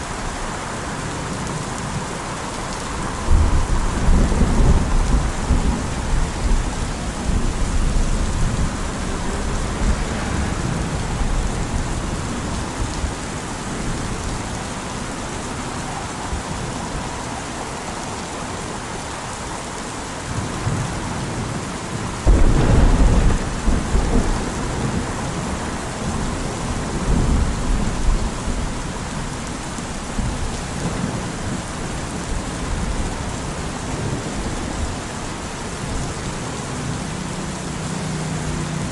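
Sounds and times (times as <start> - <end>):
steady rain falling: 0.0 - 38.9
rolling thunder: 3.2 - 13.2, 20.6 - 29.4.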